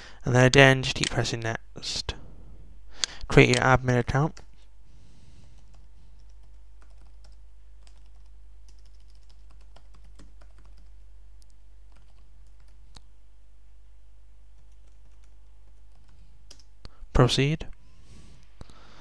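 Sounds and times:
low hum: 0:01.4 - 0:03.6.

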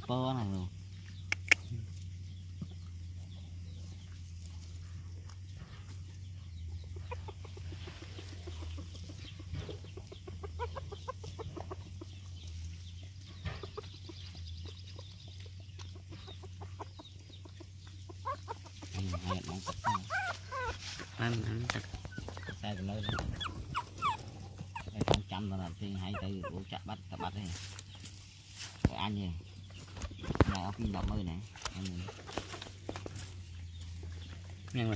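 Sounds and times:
faint short pitched calls: 0:18.2 - 0:25.2.

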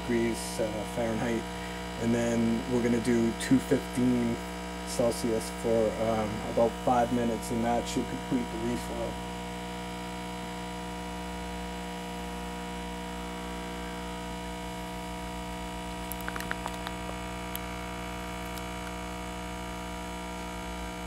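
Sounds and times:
hot air blower humming: 0:00.0 - 0:02.1.

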